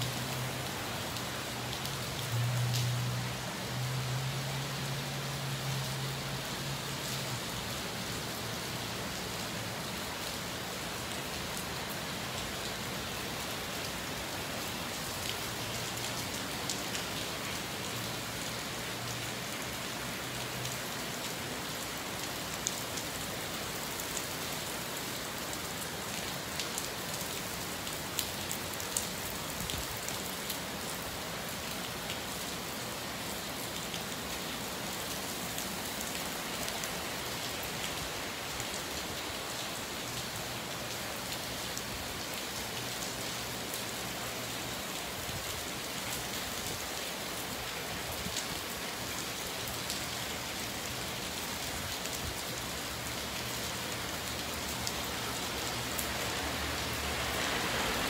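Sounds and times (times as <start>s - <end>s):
rain falling on wet pavement: 0.0s - 58.0s.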